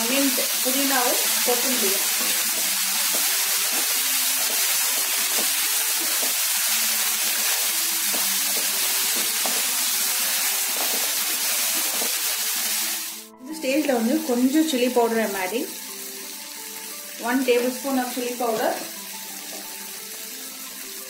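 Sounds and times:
vegetables sizzling in hot oil: 0.0 - 21.0
spatula stirring: 2.0 - 12.8.

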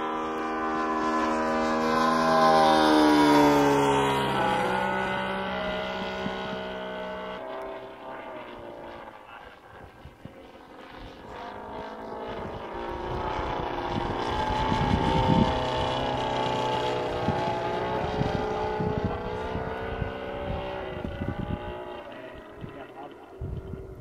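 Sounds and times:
model plane engine flying past: 0.0 - 24.0
wind gusting on microphone: 8.3 - 24.0.

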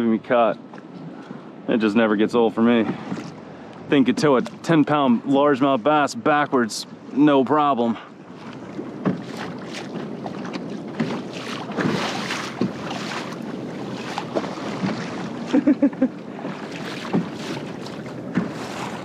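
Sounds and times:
water splashing along hull: 0.0 - 19.0
wind on microphone: 8.2 - 19.0.

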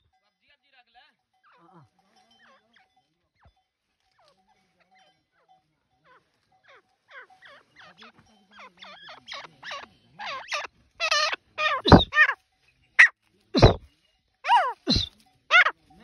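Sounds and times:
bird shrill sweeping calls: 9.2 - 12.4, 13.0 - 13.8, 14.5 - 15.7.

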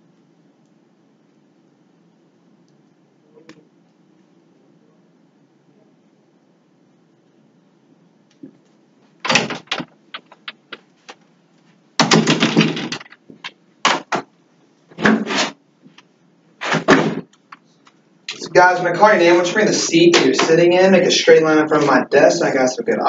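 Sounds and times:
objects rustling and clattering: 8.4 - 14.3.

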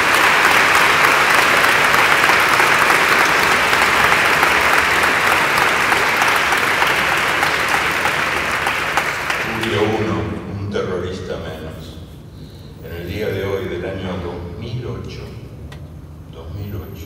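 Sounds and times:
large audience applauding: 0.0 - 10.2.

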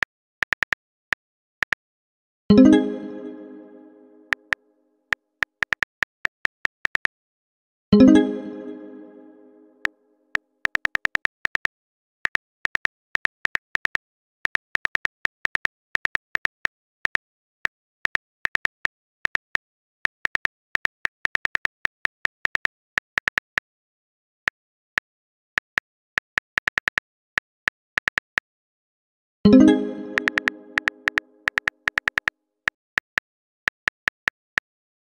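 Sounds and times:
smartphone keyboard taps: 30.2 - 32.3, 33.0 - 34.4.

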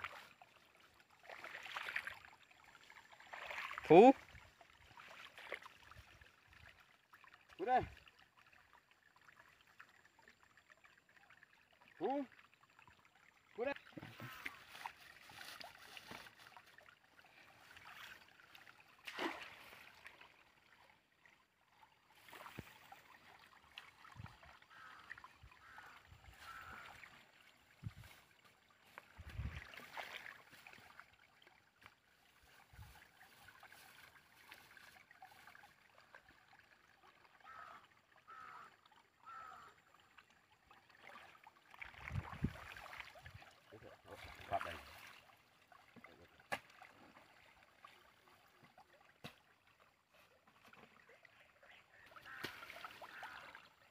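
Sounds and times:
shallow water sloshing: 1.1 - 21.2, 21.8 - 36.5
wet mud squelching: 51.9 - 53.5.

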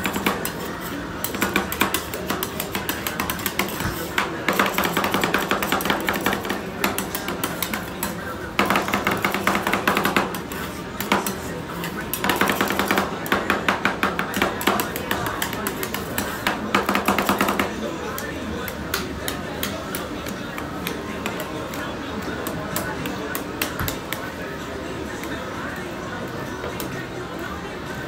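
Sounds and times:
metal spatulas clacking on steel: 0.0 - 21.8.

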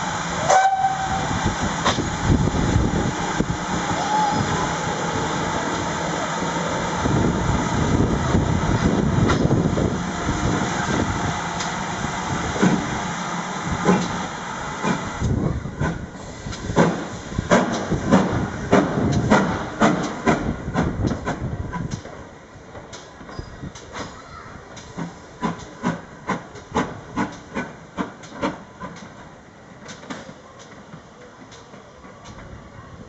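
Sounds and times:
steam hissing: 0.0 - 22.0
train wheels clicking over rail joints: 0.4 - 3.8, 5.1 - 32.6.

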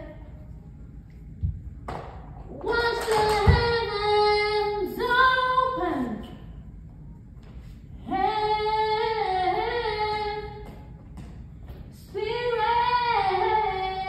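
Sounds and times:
woman singing unaccompanied: 2.5 - 6.3, 8.0 - 10.8, 12.0 - 14.0.

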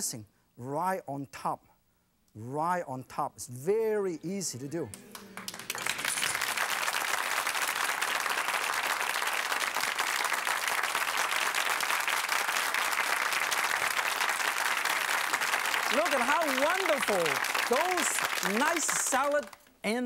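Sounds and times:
audience applauding: 4.9 - 19.7.

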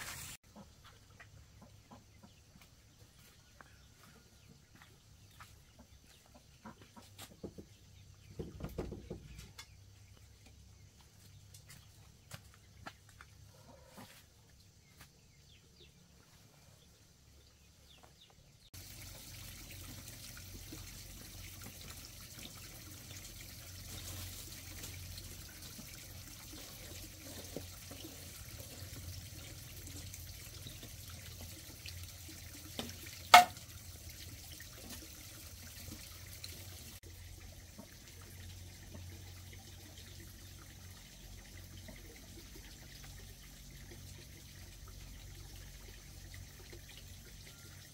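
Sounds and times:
running water trickling: 17.3 - 47.9.

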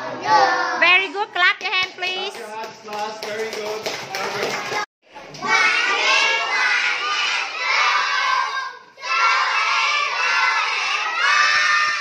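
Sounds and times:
young children shouting together: 5.6 - 12.0.

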